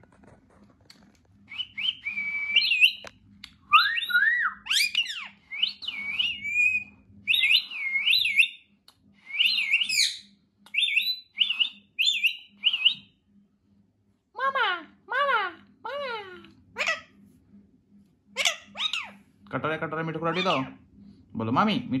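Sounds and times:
parakeet whistling: 1.5s - 3.1s, 3.7s - 8.6s, 9.3s - 13.2s, 18.4s - 19.2s, 20.2s - 20.8s.

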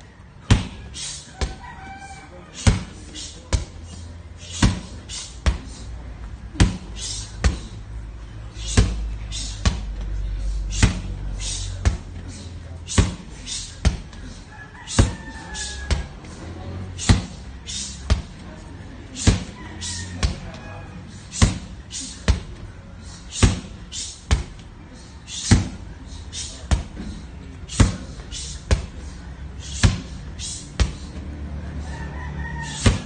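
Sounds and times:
medicine ball smacking a wall: 0.4s - 0.8s, 2.6s - 3.8s, 4.6s - 5.7s, 6.5s - 7.7s, 8.7s - 9.0s, 10.7s - 11.1s, 12.9s - 14.1s, 17.0s - 17.4s, 19.2s - 19.6s, 21.4s - 21.7s, 22.3s - 22.6s, 23.4s - 24.6s, 25.5s - 25.8s, 26.7s - 27.1s, 28.7s - 28.9s, 29.8s - 30.2s, 30.8s - 31.0s, 32.8s - 33.0s.

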